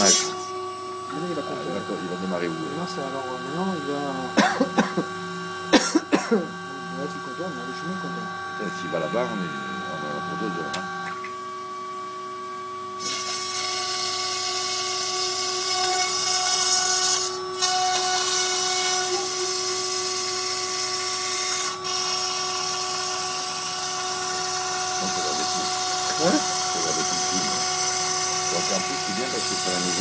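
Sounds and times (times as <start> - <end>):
high hissing cutting noise: 0.0 - 10.9, 24.9 - 30.0
router spindle whine: 0.0 - 30.0.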